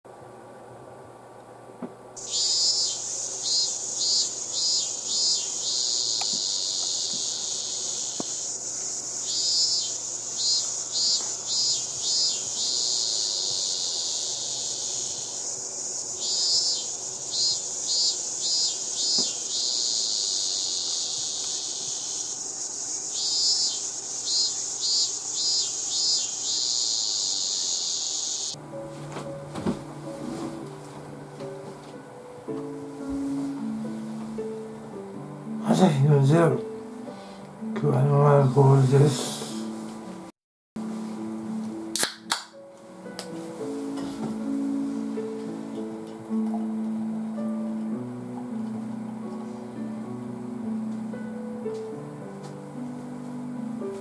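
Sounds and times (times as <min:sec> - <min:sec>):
insect chirps: 0:02.2 - 0:28.6
insects droning: 0:02.2 - 0:29.4, 0:43.6 - 0:54.0.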